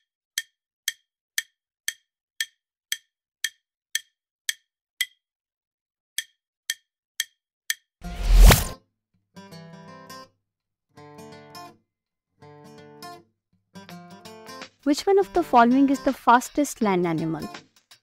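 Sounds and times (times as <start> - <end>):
countdown timer ticking: 14.9 - 17.6.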